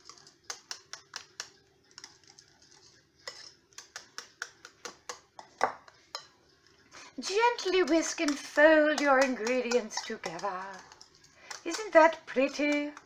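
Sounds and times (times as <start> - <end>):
whisk clicking against bowl: 0.0 - 2.4, 3.8 - 5.2, 7.2 - 13.0.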